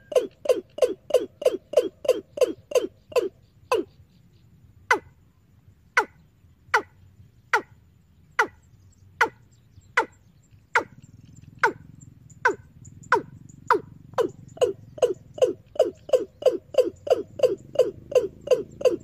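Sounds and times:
recorded bird call over loudspeaker: 8.4s - 19.0s.

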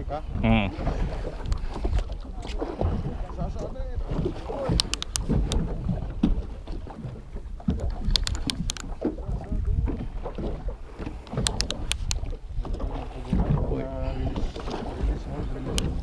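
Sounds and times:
boat rumbling on water: 0.0s - 16.0s
wind buffeting microphone: 0.0s - 16.0s
sharp clicks: 4.7s - 5.6s, 8.0s - 9.0s, 11.2s - 12.3s.

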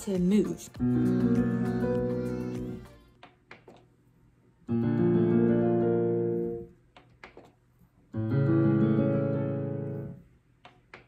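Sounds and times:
digital piano chords: 0.0s - 2.9s, 4.7s - 6.7s, 8.1s - 10.2s.

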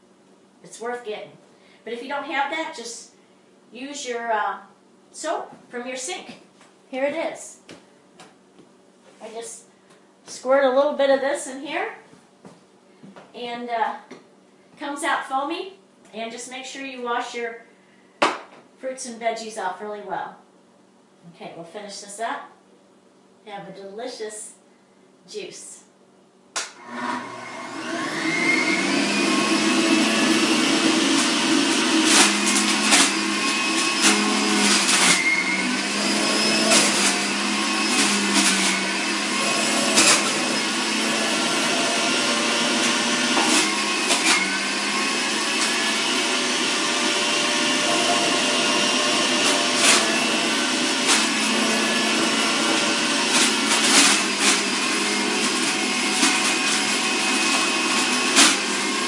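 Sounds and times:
juicer motor whine: 26.6s - 59.0s.

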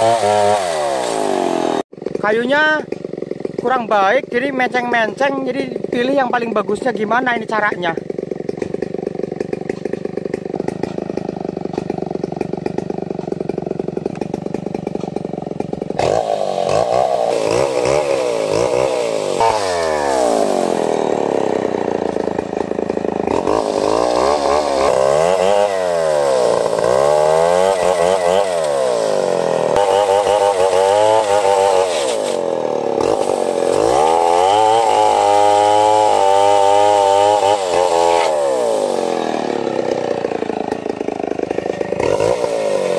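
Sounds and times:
chainsaw revving through wood: 0.0s - 42.9s.

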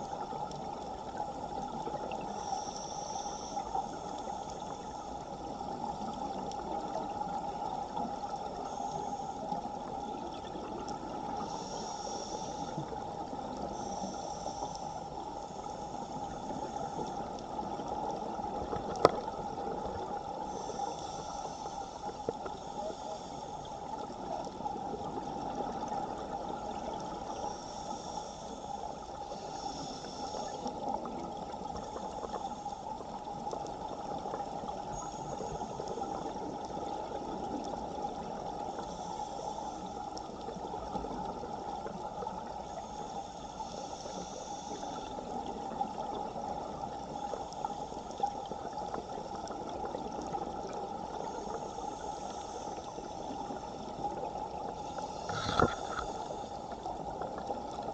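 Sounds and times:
underwater current rushing: 54.8s - 56.6s.

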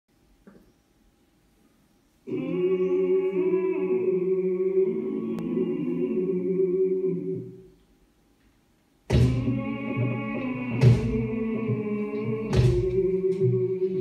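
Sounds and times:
voices singing a held chord: 2.2s - 7.8s, 9.1s - 14.0s.

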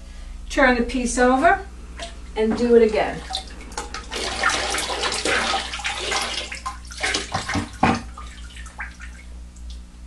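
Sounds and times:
glaze splashing in a bucket: 3.2s - 9.8s.

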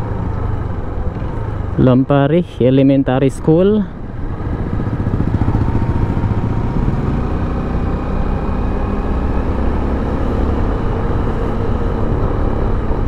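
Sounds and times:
motorcycle engine running: 3.6s - 13.0s.

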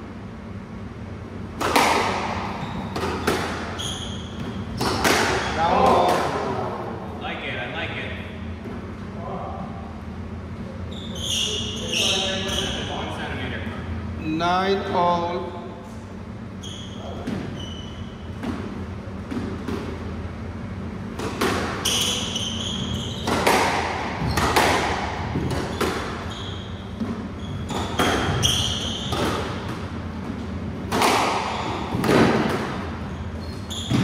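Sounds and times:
squash ball hitting rackets and walls: 1.4s - 6.8s, 17.0s - 34.0s
shoes squeaking on wooden floor: 2.5s - 5.6s, 21.8s - 23.5s, 25.3s - 29.7s, 32.9s - 34.0s.

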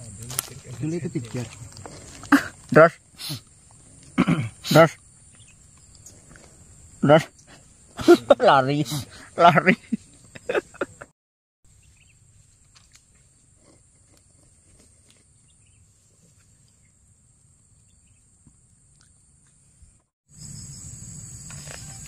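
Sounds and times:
high-pitched insect drone: 19.2s - 22.0s.

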